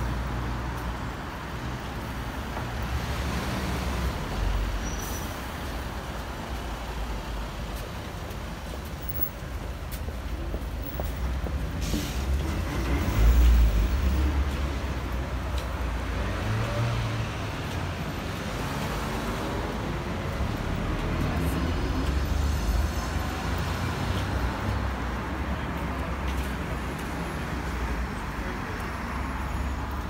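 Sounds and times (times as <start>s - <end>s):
cars driving past: 0.0s - 9.3s, 10.4s - 30.0s.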